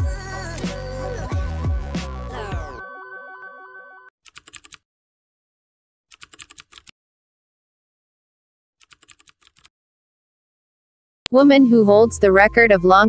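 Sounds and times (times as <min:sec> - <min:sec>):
electronic music: 0:00.0 - 0:04.1
keyboard typing clicks: 0:04.2 - 0:04.8, 0:06.1 - 0:06.9, 0:08.8 - 0:09.7.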